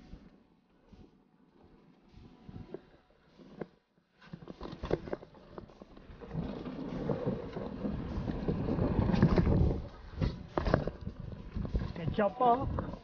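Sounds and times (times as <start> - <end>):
tyres rumbling over ground: 6.0 - 12.2.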